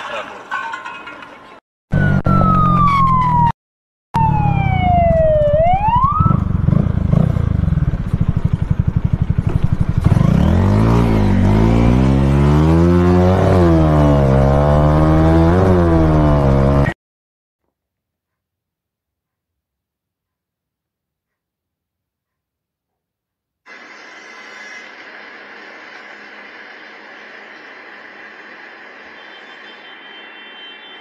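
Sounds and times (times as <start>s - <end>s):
siren wailing: 1.9s - 3.6s, 4.2s - 6.7s
motorcycle engine revving: 4.2s - 17.0s.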